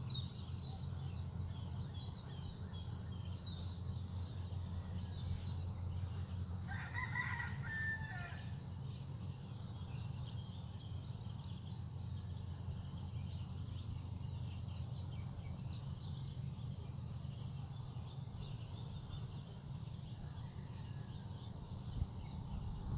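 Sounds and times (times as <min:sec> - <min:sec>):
rooster crowing: 0:06.7 - 0:08.6, 0:20.1 - 0:21.4.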